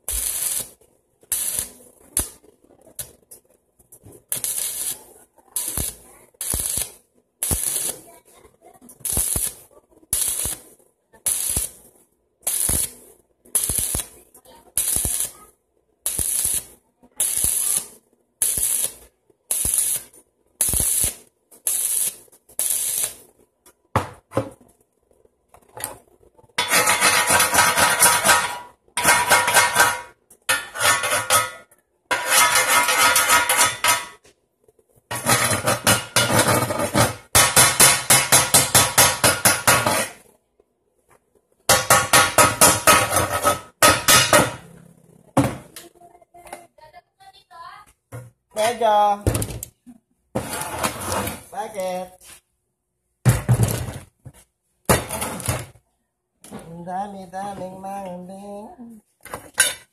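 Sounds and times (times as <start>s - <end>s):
welding arc crackling: 0.0s - 3.4s, 4.2s - 8.2s, 8.9s - 23.4s.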